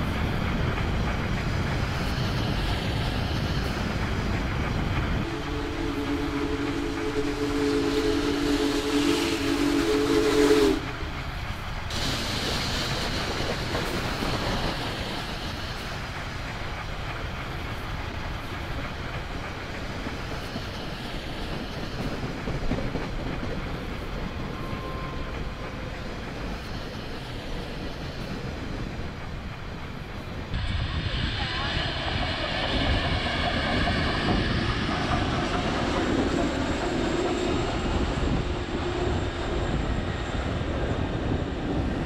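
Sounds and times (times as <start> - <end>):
train running on rails: 0.0 - 42.0
steam locomotive whistle: 5.2 - 11.0, 24.5 - 25.7.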